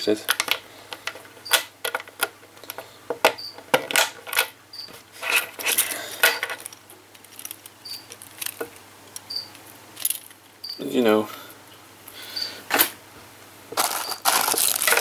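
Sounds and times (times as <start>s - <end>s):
rustling handling noise: 0.1s - 10.6s, 13.7s - 15.0s.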